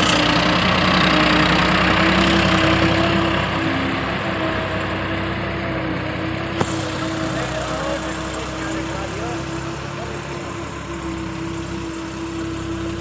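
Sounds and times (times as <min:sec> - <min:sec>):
tractor diesel engine running: 0:00.0 - 0:13.0.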